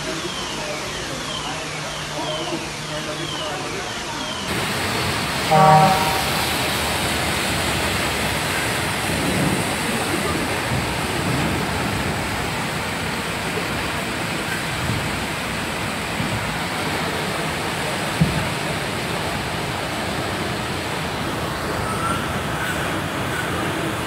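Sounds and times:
floodwater rushing: 4.4 - 24.0
water gushing from a drain: 4.5 - 24.0.

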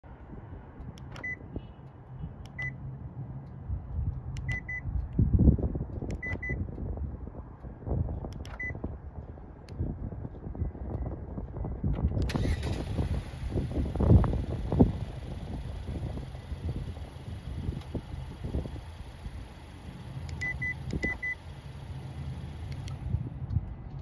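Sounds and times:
key fob lock click: 8.3 - 8.7.

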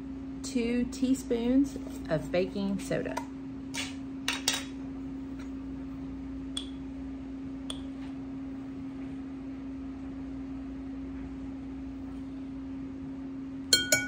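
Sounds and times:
steady low hum: 0.0 - 14.0
metal spoon clinking in glass jar: 13.8 - 14.0.

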